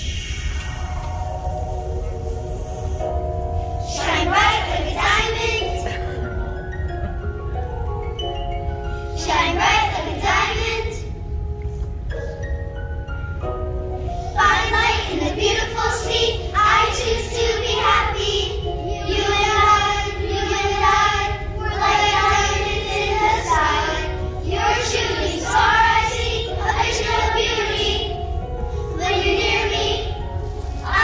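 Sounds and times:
children singing together: 3.8 - 6.6, 9.1 - 11.1, 14.3 - 31.0.

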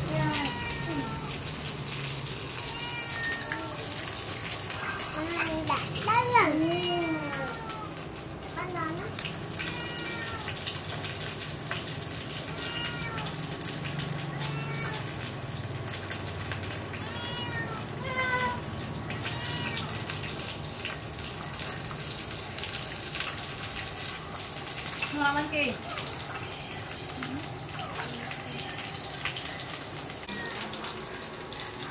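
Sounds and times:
kitten meowing: 0.1 - 1.5, 2.5 - 4.1, 9.6 - 10.6, 12.3 - 13.4, 14.3 - 15.2, 17.0 - 18.6, 19.2 - 20.3.

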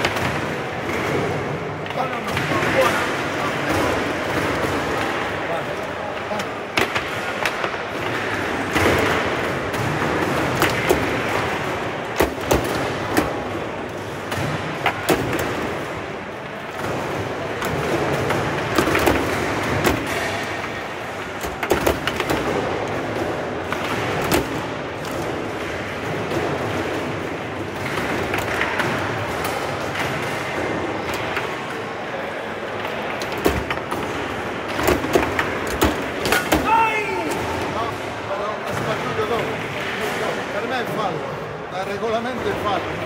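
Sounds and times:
background noise: 0.0 - 43.0
foosball knocks and clacks: 16.7 - 31.7.

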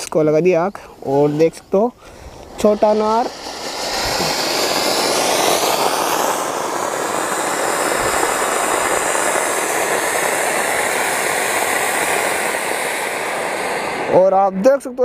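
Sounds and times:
fountain fireworks hissing: 0.0 - 15.0.

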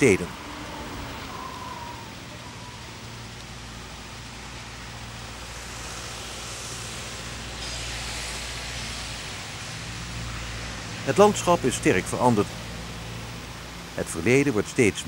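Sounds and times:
hiss: 1.2 - 11.8.

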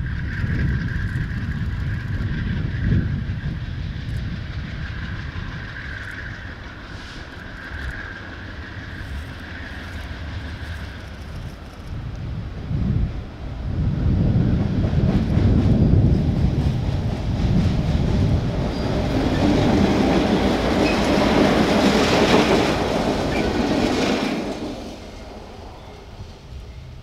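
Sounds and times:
diesel locomotive engine rumble: 0.0 - 27.0
wheels rattling on rails: 0.0 - 27.0.

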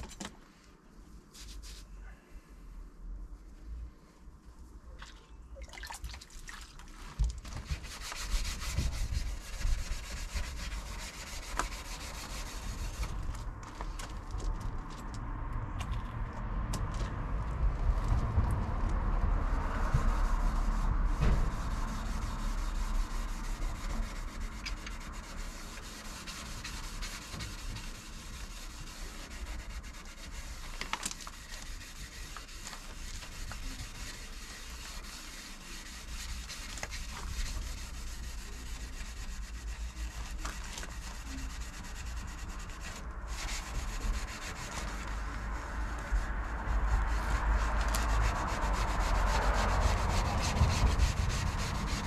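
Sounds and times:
scrubbing pad rubbing metal: 19.9 - 45.2.

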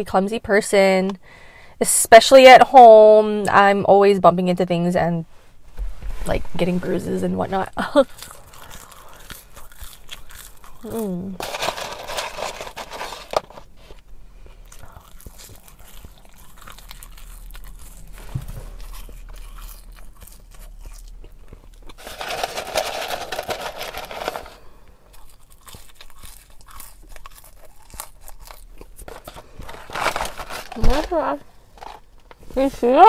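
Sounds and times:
chewing and crunching food: 7.8 - 32.4.

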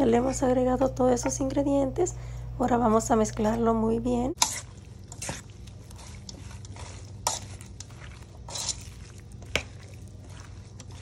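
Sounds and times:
wet food stirring rustle: 3.0 - 11.0.

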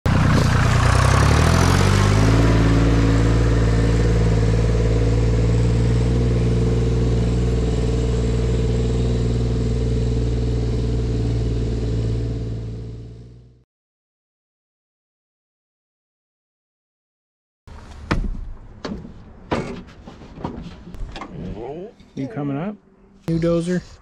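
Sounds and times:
tractor engine revving: 0.1 - 13.6.

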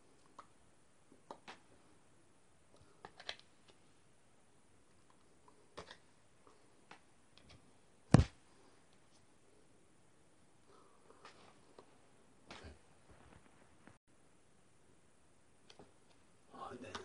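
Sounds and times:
sharp thump: 8.1 - 8.3.

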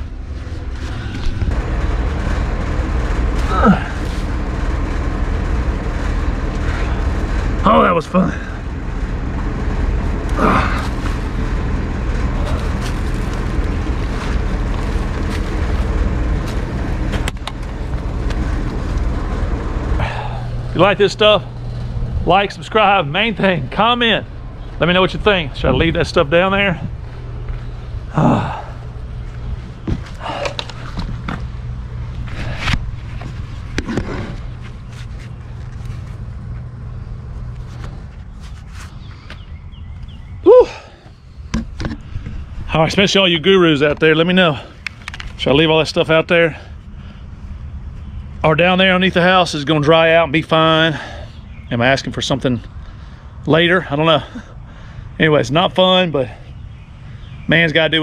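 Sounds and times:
low microphone rumble: 0.0 - 49.6
clothing rustling: 10.0 - 19.2.

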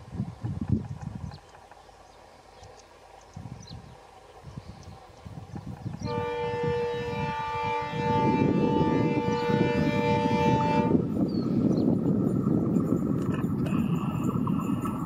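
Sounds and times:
train rumbling on rails: 0.0 - 15.0
locomotive horn blast: 6.0 - 11.2.

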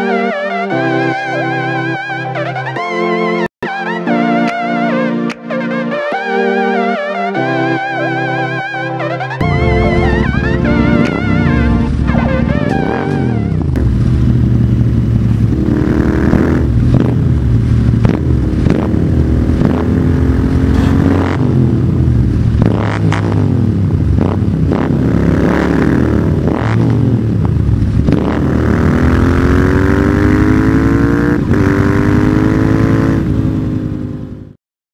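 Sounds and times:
motorcycle engine revving: 9.4 - 34.6.

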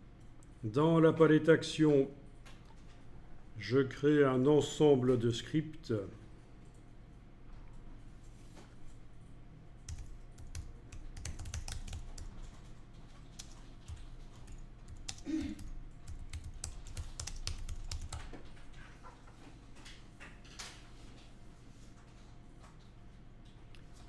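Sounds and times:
computer keyboard key clicks: 9.9 - 12.7, 13.3 - 18.4.

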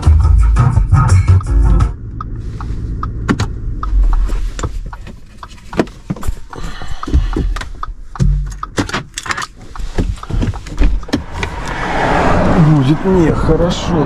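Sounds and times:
clicks and knocks in car cabin: 3.1 - 11.5
low thumps: 10.2 - 13.1.

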